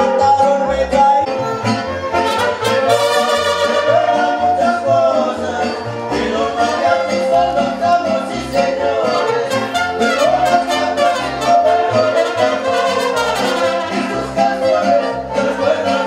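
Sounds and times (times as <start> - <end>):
music with brass instruments: 0.0 - 16.0.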